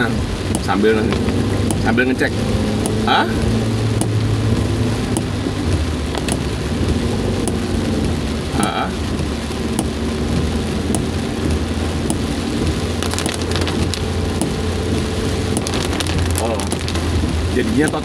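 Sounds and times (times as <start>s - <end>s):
car engine hum: 0.0s - 18.0s
heavy rain on car roof: 0.0s - 18.0s
road noise: 0.0s - 18.0s.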